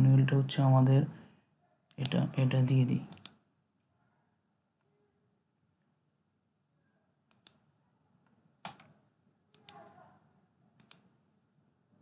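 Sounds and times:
computer mouse clicking: 0:01.9 - 0:02.2, 0:03.0 - 0:03.4, 0:07.3 - 0:10.0, 0:10.8 - 0:11.2.

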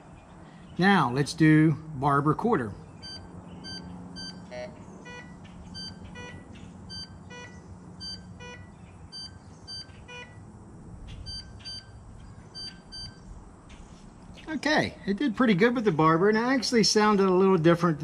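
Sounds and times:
metal detector beeping: 0:03.0 - 0:10.4, 0:11.2 - 0:13.2.

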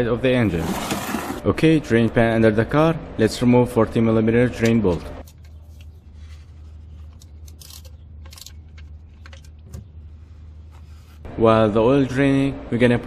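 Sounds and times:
ratcheting wrench clicks and scrapes: 0:07.4 - 0:09.5.

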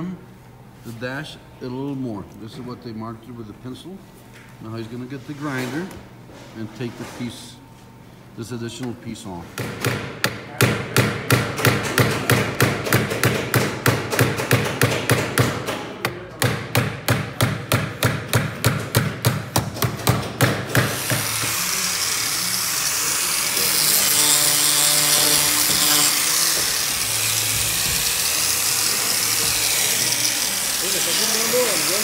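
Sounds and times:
angle grinder running: 0:20.8 - 0:32.0.

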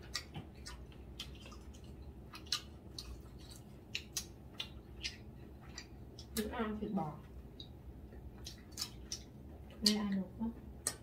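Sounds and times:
chewing: 0:00.0 - 0:06.5, 0:07.2 - 0:11.0.

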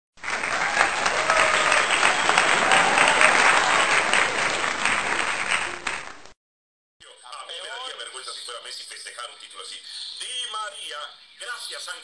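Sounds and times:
crowd applauding: 0:00.2 - 0:06.4.

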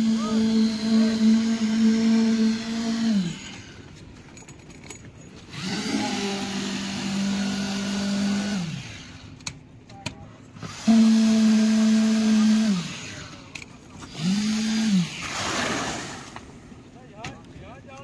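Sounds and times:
concrete vibrator motor humming: 0:00.0 - 0:04.0, 0:05.4 - 0:09.5.

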